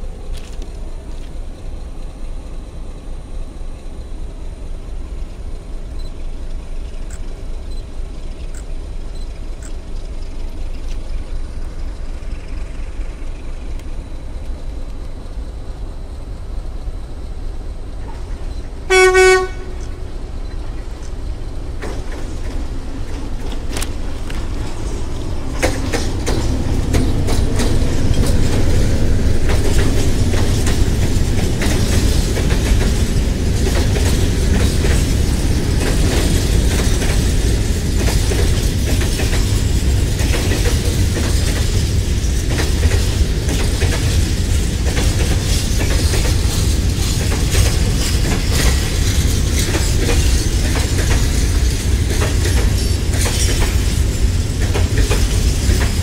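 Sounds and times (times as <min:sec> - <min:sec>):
train wheels clicking over rail joints: 0:00.0 - 0:02.9, 0:03.5 - 0:56.0
locomotive engine rumble: 0:00.0 - 0:56.0
train horn blast: 0:18.9 - 0:20.0.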